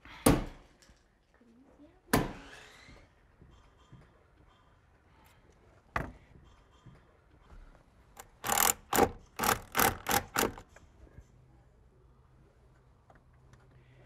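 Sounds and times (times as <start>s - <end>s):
stapler strikes: 8.2s - 10.6s.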